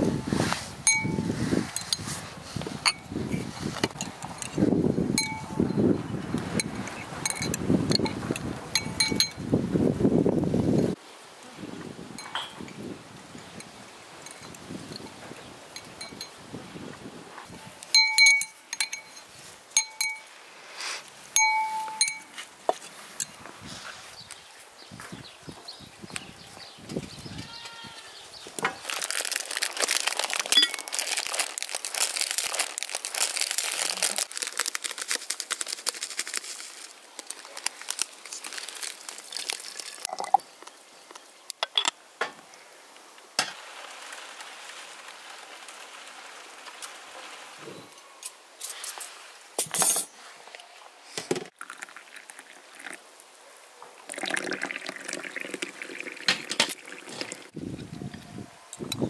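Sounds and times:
clinks of tea things: 0.9s - 2.0s, 5.2s - 5.8s, 6.6s - 9.4s, 12.2s - 12.8s, 13.6s - 15.1s, 17.9s - 20.3s, 21.4s - 22.4s, 41.6s - 42.0s, 49.6s - 50.2s
crinkling and rustling: 28.4s - 41.2s
water pouring into a cup: 39.1s - 40.4s, 51.5s - 53.0s, 54.1s - 57.6s.

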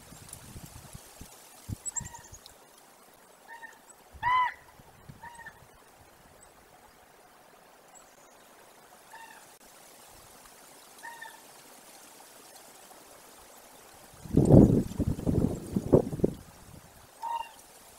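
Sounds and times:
honk-like animal calls: 3.5s - 5.6s.

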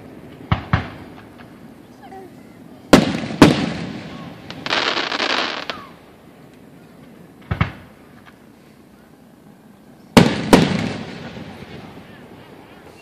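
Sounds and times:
firework shells bursting: 2.9s - 6.6s.

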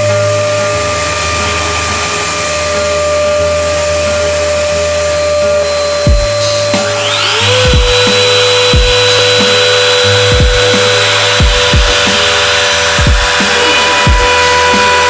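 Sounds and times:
router spindle whining: 0.0s - 15.0s
shop vacuum running: 0.0s - 15.0s
music with thudding beat: 5.8s - 15.0s.

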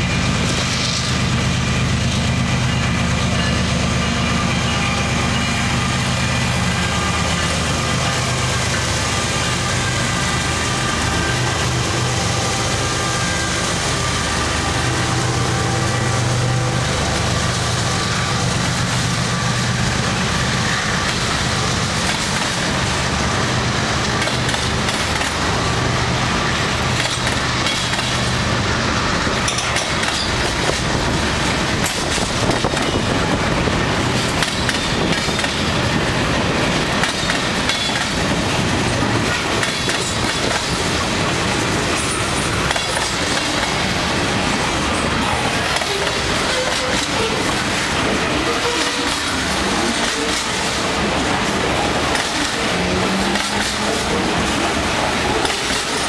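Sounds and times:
diesel locomotive hum: 0.0s - 56.0s
freight cars rolling on rails: 0.0s - 56.0s.

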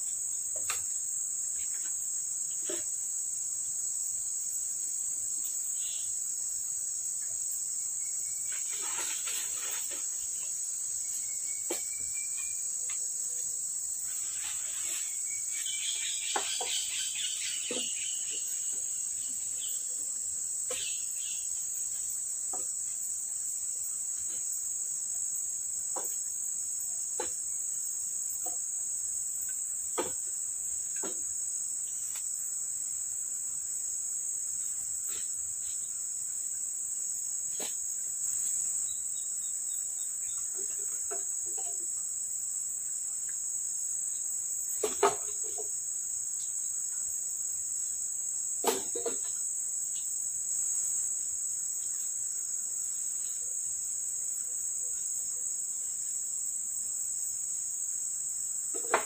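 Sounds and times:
high-pitched insect chorus: 0.0s - 59.0s
leaves rustling: 8.4s - 10.6s, 14.0s - 16.2s.

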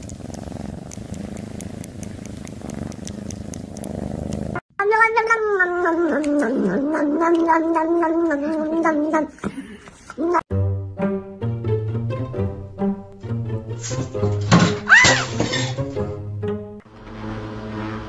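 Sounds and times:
cat purring: 0.0s - 4.6s.

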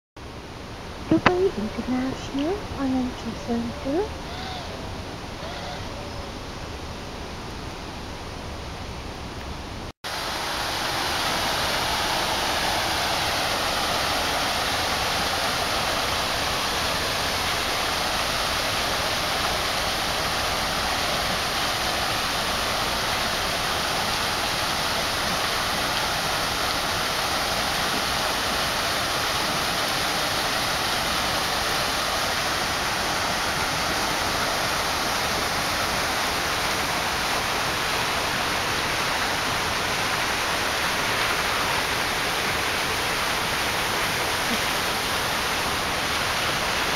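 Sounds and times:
fountain water splashing into pool: 10.1s - 46.9s.

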